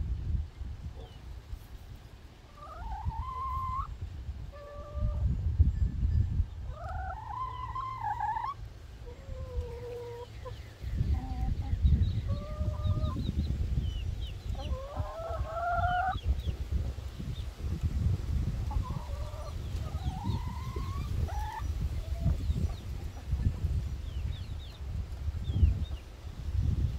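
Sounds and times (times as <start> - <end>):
hens drawn-out wavering calls: 2.5 - 3.9, 6.7 - 10.3
hens clucking: 2.5 - 5.2, 6.6 - 13.4, 14.2 - 17.9, 18.5 - 26.0.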